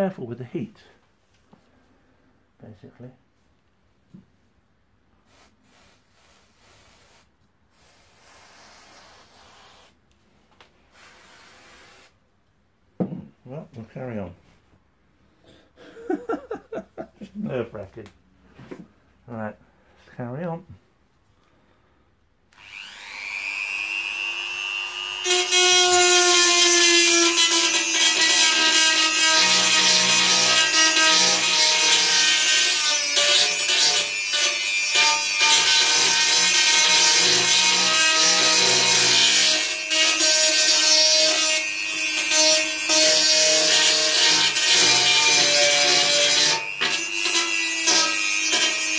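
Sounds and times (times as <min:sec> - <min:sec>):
rotary tool motor whine: 0:22.6 - 0:23.8.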